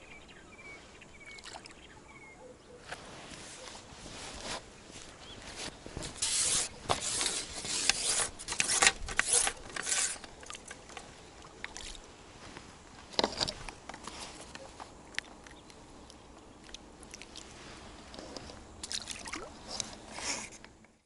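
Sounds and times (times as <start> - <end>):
fish splashing in water: 18.8 - 19.6.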